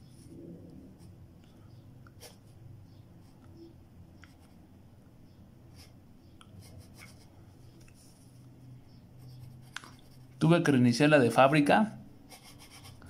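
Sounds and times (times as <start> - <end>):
pencil scratching on paper: 6.6 - 7.4, 9.2 - 10.5, 12.3 - 13.0.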